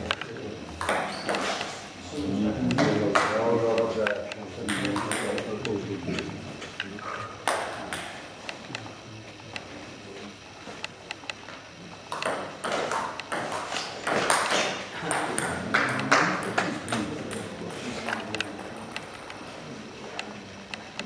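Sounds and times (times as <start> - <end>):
table tennis ball bouncing: 0.8 - 1.7, 2.6 - 6.2, 7.4 - 8.6, 12.1 - 19.4
table tennis rally clicks: 2.6 - 8.9, 12.1 - 19.4.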